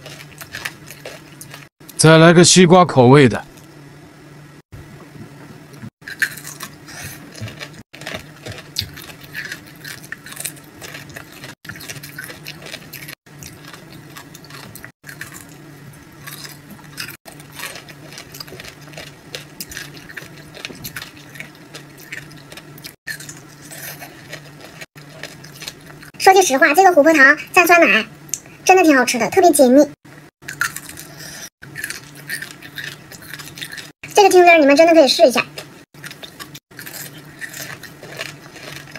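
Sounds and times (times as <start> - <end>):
crunching hard candy: 0.0 - 1.7, 6.0 - 26.1, 30.4 - 34.0, 35.6 - 38.9.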